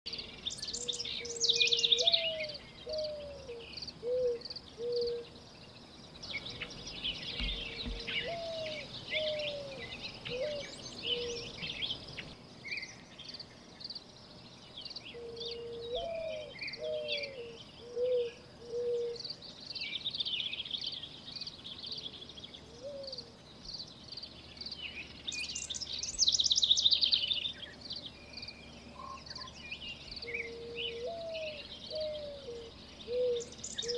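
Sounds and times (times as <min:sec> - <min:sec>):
small birds chirping and twittering: 0:00.1 - 0:33.9
bird cooing: 0:00.7 - 0:05.3, 0:06.3 - 0:11.9, 0:15.2 - 0:19.3, 0:22.6 - 0:23.3, 0:30.1 - 0:33.9.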